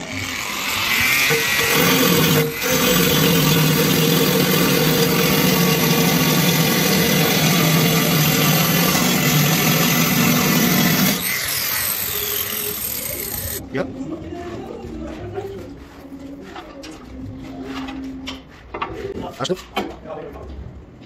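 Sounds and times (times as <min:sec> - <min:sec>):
angle grinder boring through tile: 0:00.0 - 0:13.6.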